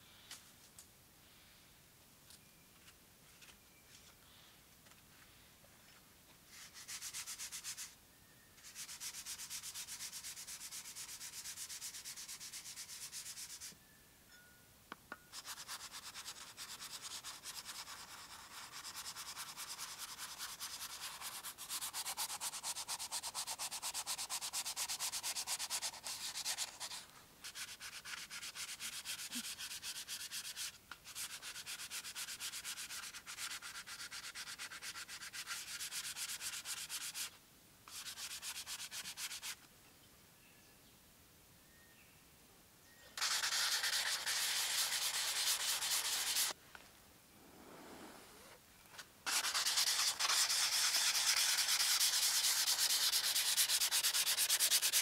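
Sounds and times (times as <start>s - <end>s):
hand sanding metal blade: 8.6s - 13.7s, 15.3s - 37.3s, 43.2s - 46.6s, 49.3s - 55.0s.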